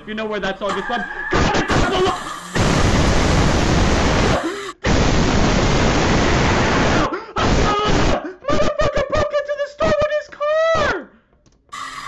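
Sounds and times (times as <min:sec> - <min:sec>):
distorted man scream-laughing: 0:00.8 - 0:04.7, 0:06.2 - 0:09.4.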